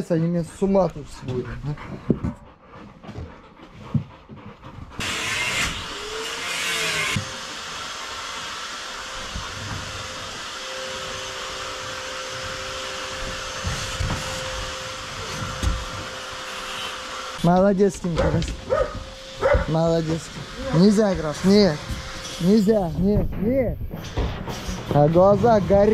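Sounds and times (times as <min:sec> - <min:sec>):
machine motor whirring hiss: 0:18.6 - 0:23.1.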